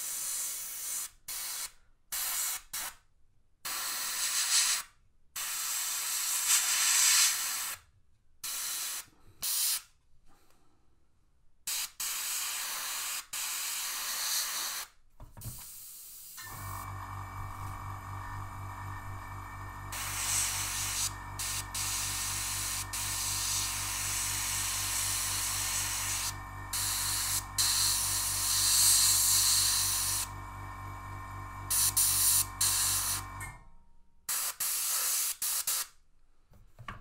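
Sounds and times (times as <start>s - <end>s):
airbrush spraying hiss bursts: 3.7s - 7.8s, 8.4s - 9.9s, 11.7s - 14.9s, 19.9s - 30.3s, 31.7s - 33.2s, 34.3s - 35.9s.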